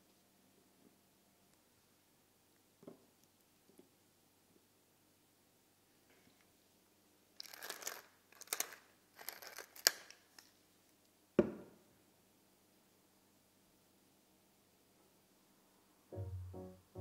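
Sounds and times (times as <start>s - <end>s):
pepper mill grinding: 7.4s - 10.0s.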